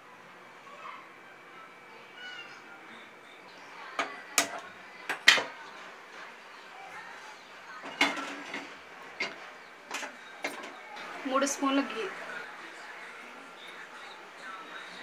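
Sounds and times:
cookware clinking on stove grate: 7.8s - 10.8s.

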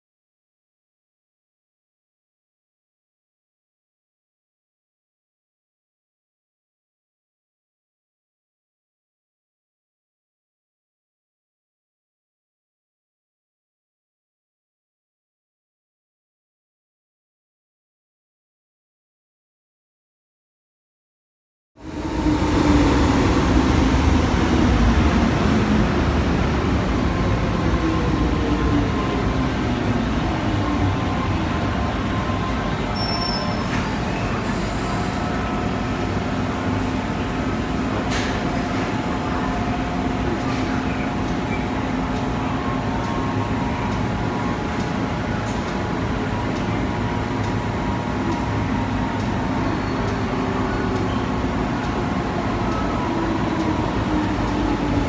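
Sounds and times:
stopped train humming: 21.8s - 55.0s.

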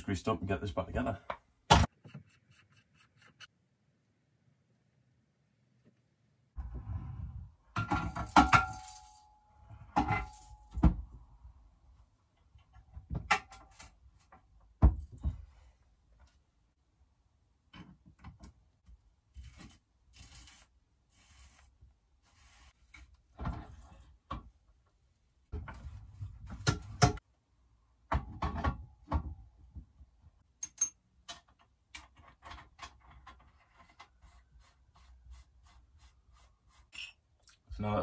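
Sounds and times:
metal parts clicking and knocking: 30.6s - 34.1s.

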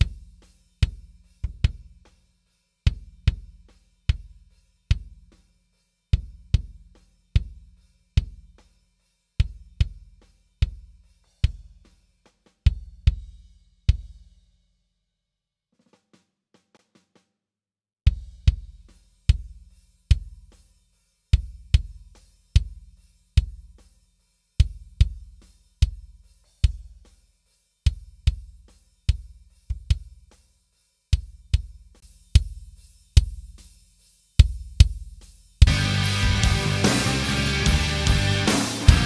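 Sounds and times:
kick drum thumps: 18.1s - 18.7s
full band with guitar: 35.7s - 39.0s.

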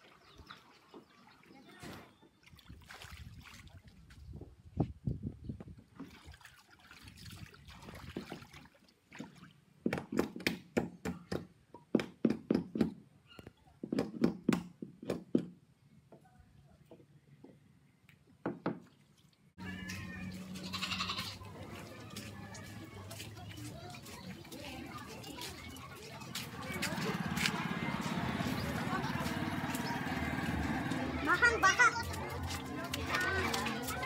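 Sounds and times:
floodwater splashing: 0.0s - 4.1s, 6.0s - 9.8s, 18.9s - 34.0s.

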